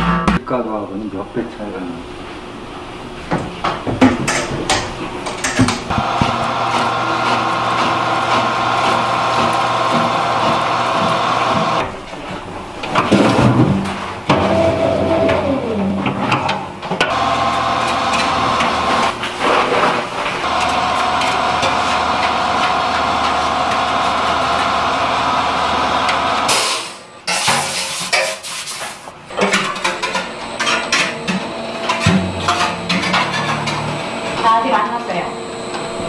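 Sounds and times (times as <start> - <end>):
dough machine motor hum: 4.5 - 13.0, 14.3 - 16.2, 17.1 - 26.5, 30.2 - 36.0.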